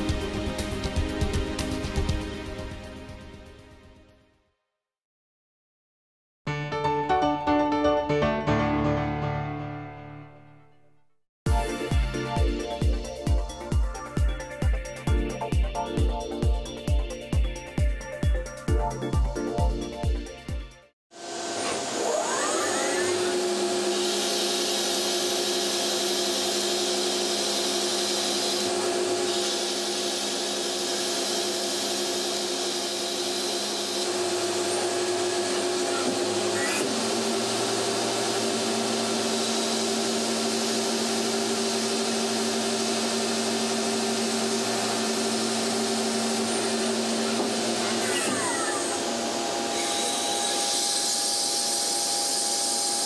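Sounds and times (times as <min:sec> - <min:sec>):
lathe machine whine: 0:21.2 - 0:53.0.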